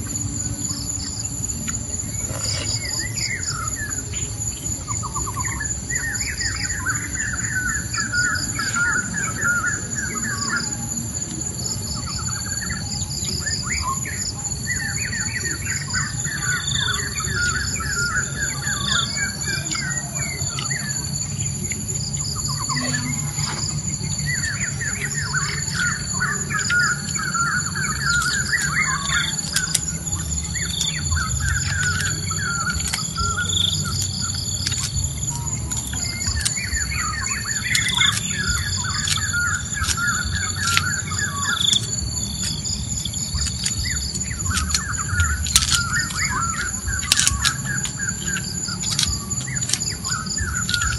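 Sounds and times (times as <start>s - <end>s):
high-pitched insect drone: 0.0s - 50.9s
low steady rumble: 0.0s - 50.9s
birds singing trilled phrases: 0.4s - 50.9s
high-pitched bird chirps: 12.1s - 50.9s.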